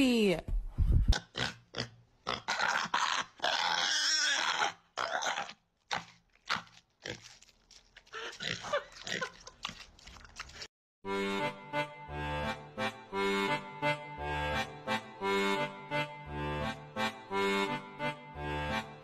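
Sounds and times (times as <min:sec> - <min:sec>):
pig crunching and chewing: 0:05.0 - 0:10.7.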